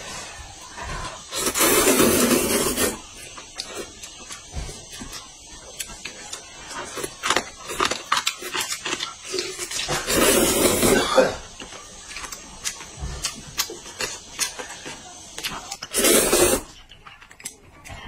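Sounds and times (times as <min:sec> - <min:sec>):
loud sucking noise: 0:00.0 - 0:04.7, 0:09.3 - 0:11.5, 0:15.8 - 0:16.7.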